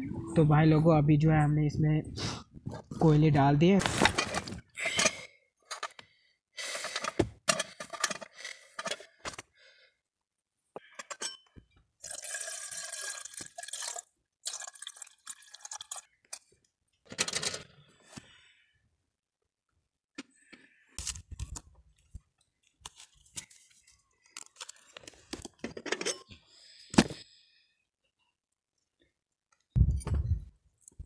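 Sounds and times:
water pouring or dripping: 12.0 - 16.4.

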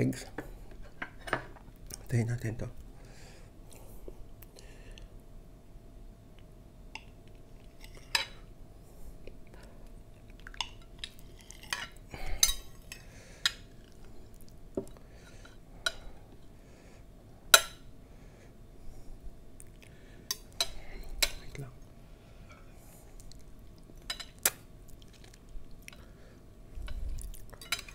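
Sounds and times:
cutlery clinking on a plate: 27.6 - 27.9.

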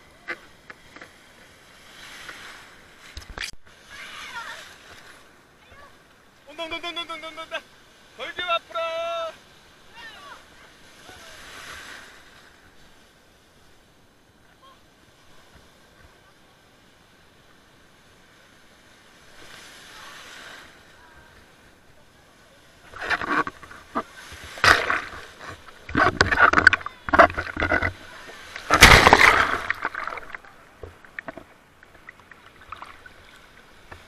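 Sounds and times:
water splashing and sloshing: 0.2 - 6.3, 22.6 - 34.0.

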